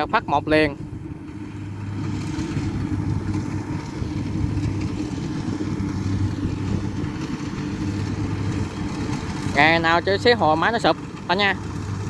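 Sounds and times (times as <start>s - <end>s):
combine harvester diesel engine: 0.0s - 12.0s.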